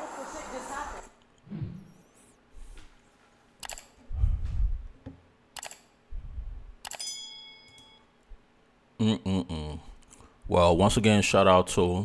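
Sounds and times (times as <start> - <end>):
bell ding: 6.9 - 8.1.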